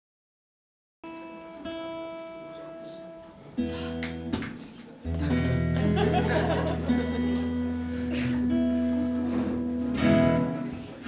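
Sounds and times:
guitar chords strummed: 0:05.0 - 0:11.0.

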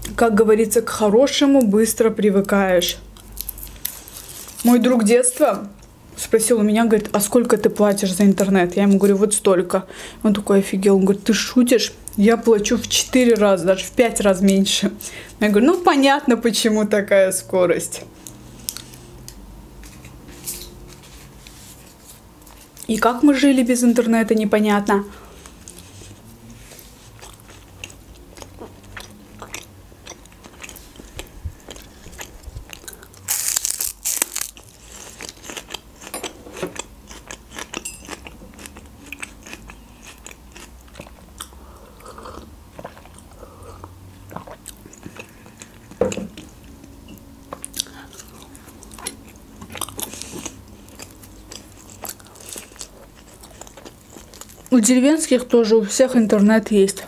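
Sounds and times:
person chewing food: 0:18.2 - 0:22.9, 0:25.2 - 0:54.7.

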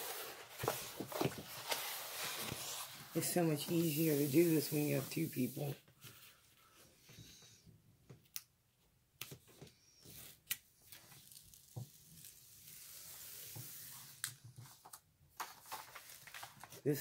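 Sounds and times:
paper sheet rustling: 0:00.0 - 0:06.4, 0:14.6 - 0:17.0.

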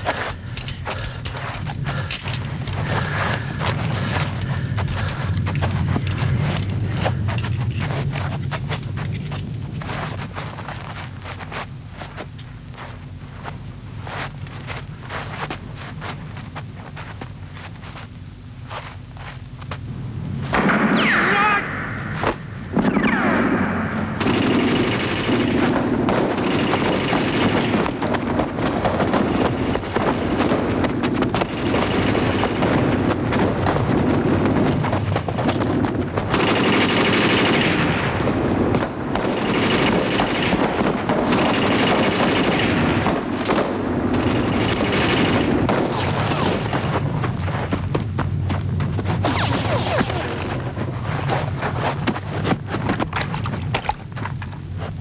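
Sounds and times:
machine-gun and rifle fire: 0:20.5 - 0:47.5, 0:49.2 - 0:51.7.

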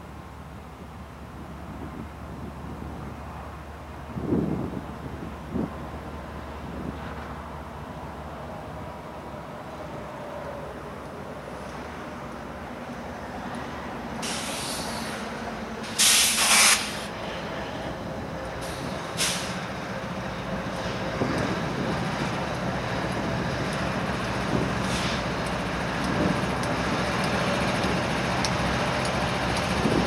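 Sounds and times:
diesel locomotives rumbling past: 0:00.0 - 0:30.0
air hissing bursts: 0:14.2 - 0:17.1, 0:19.2 - 0:19.6.

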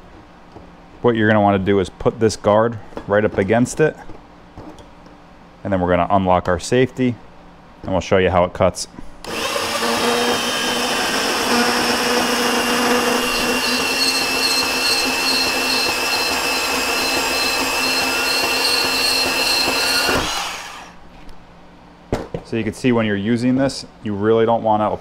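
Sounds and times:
band saw cutting steel: 0:09.3 - 0:21.0.

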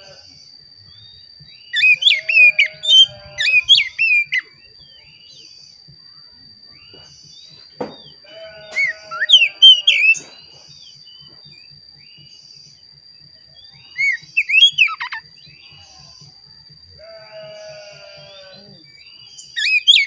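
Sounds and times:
faint steady high tone: 0:00.0 - 0:20.0
bird singing whistled phrases: 0:01.6 - 0:05.5, 0:08.7 - 0:10.3, 0:13.6 - 0:15.7, 0:18.3 - 0:20.0.

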